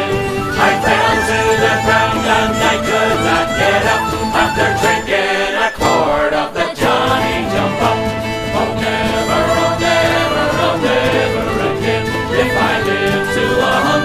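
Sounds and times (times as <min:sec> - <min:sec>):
uilleann pipes: 0:00.0 - 0:05.1
tin whistles: 0:00.0 - 0:06.3, 0:07.3 - 0:14.0
banjo: 0:00.0 - 0:14.0
fiddle: 0:00.0 - 0:14.0
strummed acoustic guitars: 0:00.0 - 0:14.0.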